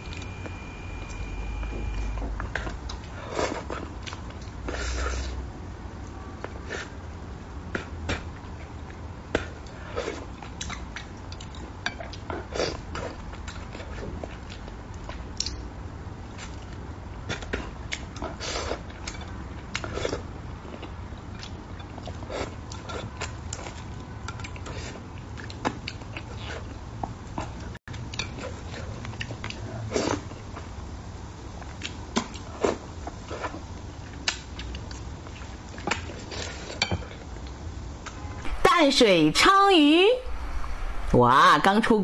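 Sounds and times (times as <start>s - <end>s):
steady low hum: 0.0s - 4.7s, 37.2s - 42.0s.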